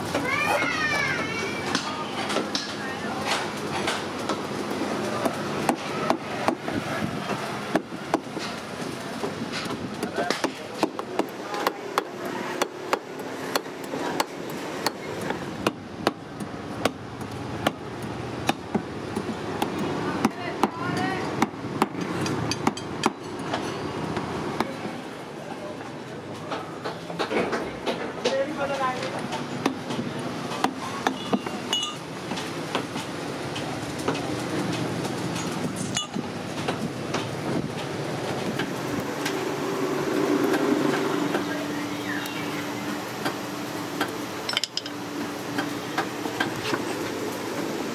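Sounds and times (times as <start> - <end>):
steady background noise: 0.0 - 47.9.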